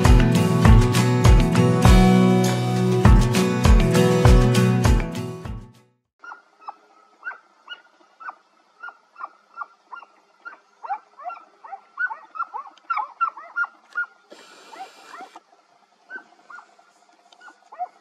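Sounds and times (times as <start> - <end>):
dogs barking and yelping: 6.2 - 15.4, 16.1 - 18.0.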